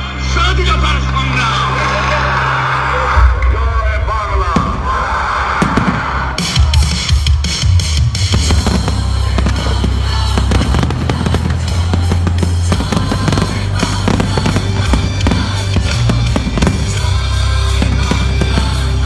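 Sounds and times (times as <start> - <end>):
loud music with heavy bass: 0.1 - 19.0
fireworks popping and crackling: 8.2 - 19.0.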